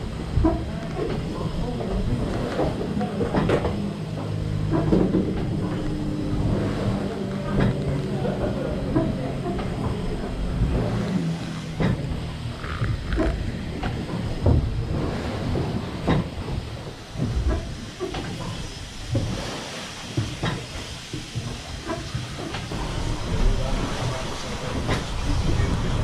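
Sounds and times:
steam engine rumble and hiss: 0.0 - 26.0
engine parts clanking: 0.2 - 26.0.

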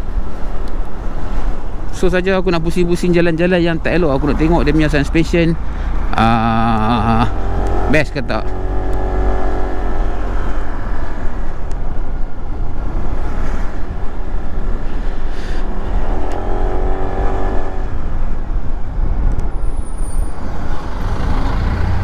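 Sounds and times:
wind rumble on microphone: 8.5 - 22.0.

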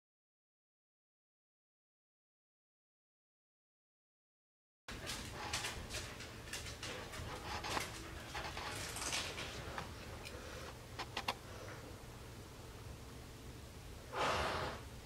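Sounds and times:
low steady hum: 4.9 - 15.0.

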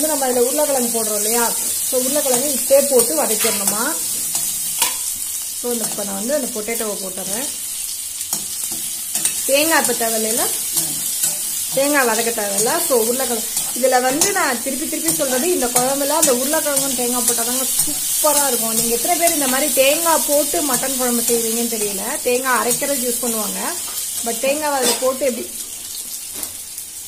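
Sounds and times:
vegetables sizzling in oil: 0.0 - 27.0
metal spatula scraping pan: 1.6 - 5.2, 8.3 - 20.6, 23.8 - 25.2.

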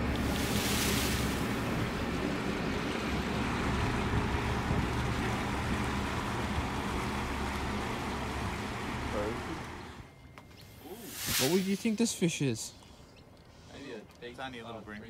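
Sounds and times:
wind buffeting microphone: 0.0 - 7.0
ocean surf washing: 0.0 - 7.5.

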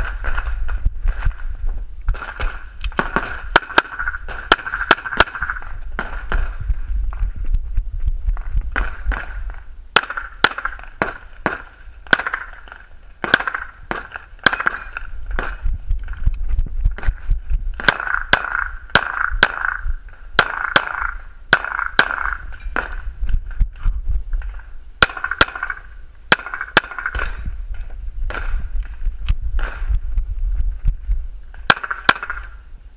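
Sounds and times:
pistol shots: 2.1 - 6.6, 8.7 - 15.6, 17.7 - 23.0, 25.0 - 27.4, 31.7 - 32.6.

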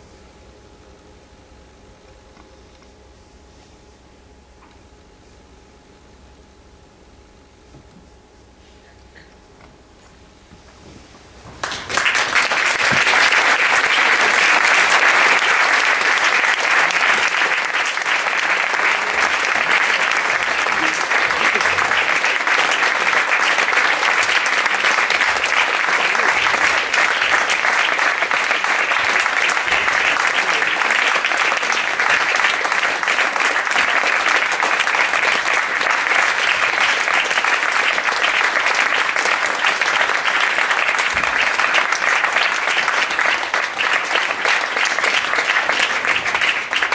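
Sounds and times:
audience applauding: 11.5 - 46.9.

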